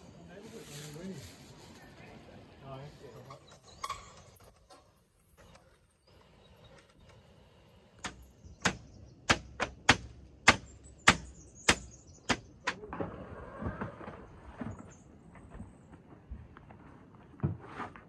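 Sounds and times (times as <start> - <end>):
rustling and scraping: 0.4 - 2.1, 12.9 - 18.0
sharp knocks on awning poles: 8.0 - 12.9.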